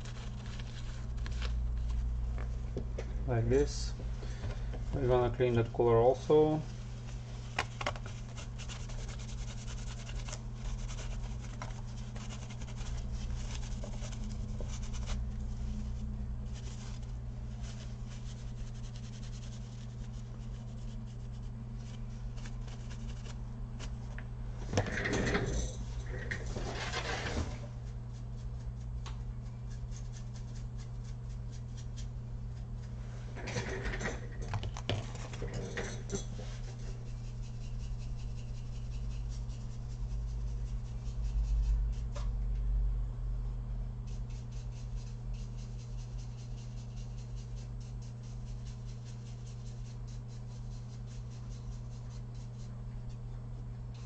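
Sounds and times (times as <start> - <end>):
scrubbing and scratching: 0.0 - 2.1, 6.0 - 24.1, 34.7 - 42.2, 44.2 - 53.4
steady low hum: 0.0 - 54.0.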